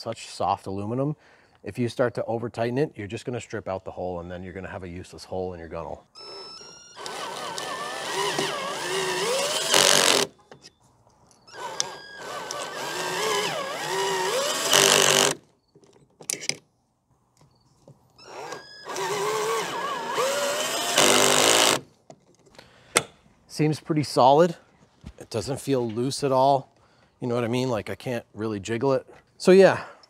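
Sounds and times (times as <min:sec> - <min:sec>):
cordless drill driving screws into metal: 0:06.2 - 0:10.6, 0:11.5 - 0:15.4, 0:18.2 - 0:21.9.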